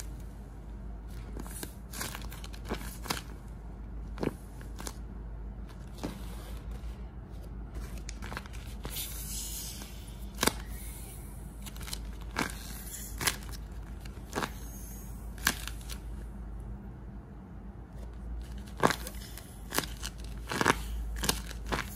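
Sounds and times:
paper and tape crinkling: 0:01.1 - 0:03.4, 0:07.7 - 0:09.3, 0:11.6 - 0:14.6, 0:18.0 - 0:21.9
sharp paper crackles: 0:01.1 - 0:03.4, 0:07.7 - 0:10.8, 0:11.6 - 0:16.1, 0:18.0 - 0:21.9.

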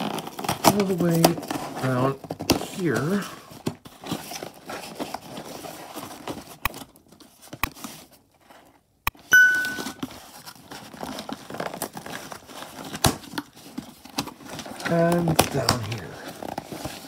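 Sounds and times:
cardboard box tearing: 0:00.0 - 0:07.0, 0:10.1 - 0:17.0
short chiming ding: 0:09.3 - 0:10.0.

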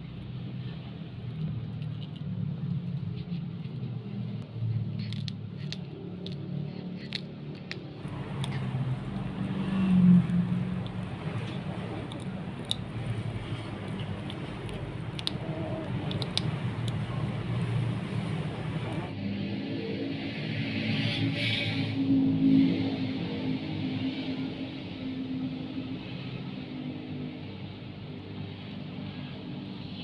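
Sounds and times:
steady low hum: 0:00.0 - 0:20.5
teeth crunching on bone: 0:05.0 - 0:17.8.

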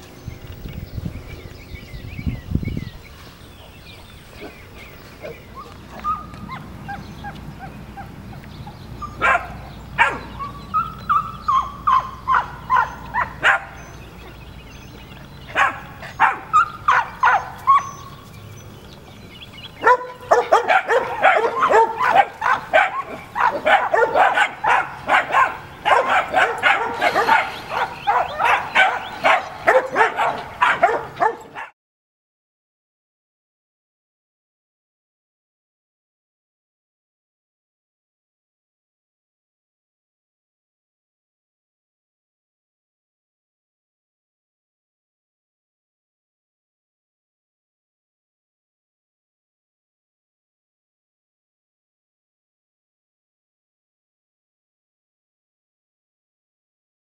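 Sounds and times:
puppies yapping and barking: 0:03.6 - 0:31.7.

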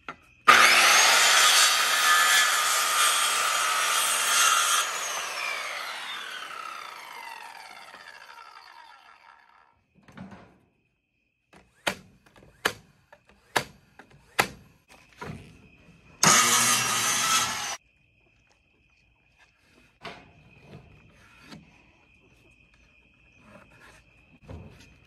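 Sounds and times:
crickets chirping: 0:00.0 - 0:00.5, 0:09.7 - 0:16.2, 0:17.8 - 0:25.0
circular saw winding down: 0:00.5 - 0:09.7, 0:16.2 - 0:17.8.

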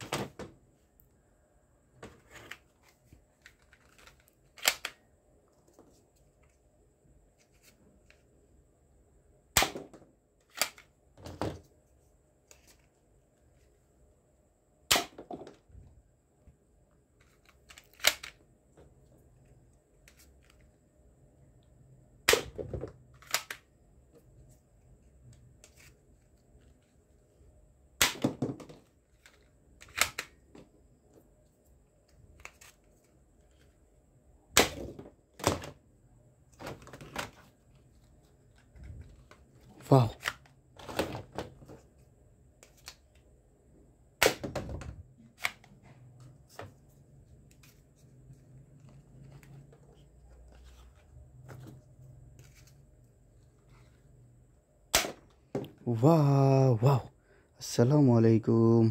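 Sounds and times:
plastic toy guns clicking: 0:03.8 - 0:05.0, 0:10.5 - 0:10.9, 0:17.3 - 0:18.4, 0:23.2 - 0:23.6, 0:29.2 - 0:30.4.

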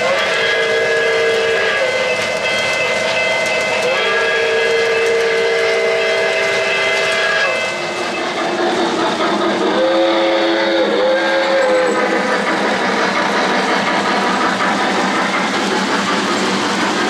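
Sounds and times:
model train whistle: 0:00.0 - 0:07.9, 0:09.6 - 0:12.1
model train wheels rumbling: 0:00.0 - 0:17.0.

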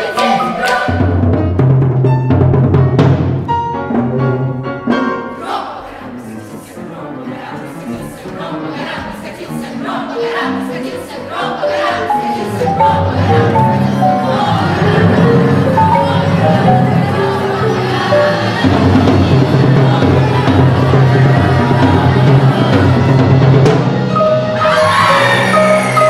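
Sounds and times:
children's choir singing: 0:00.0 - 0:01.2, 0:04.9 - 0:26.0
timpani: 0:00.0 - 0:06.2, 0:11.8 - 0:26.0
piano: 0:00.0 - 0:26.0.

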